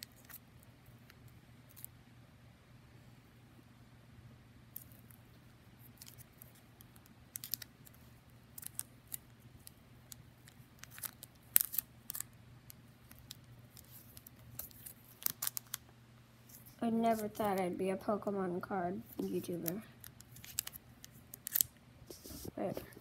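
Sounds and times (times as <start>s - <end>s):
plastic binder pages crinkling: 5.9s - 15.8s, 16.4s - 17.6s, 19.1s - 23.0s.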